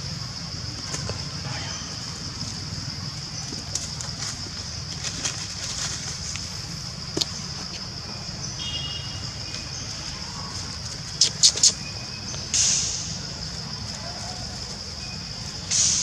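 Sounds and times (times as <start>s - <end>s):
high-pitched insect drone: 5.2s - 16.0s
sharp loud snaps: 12.4s - 13.2s.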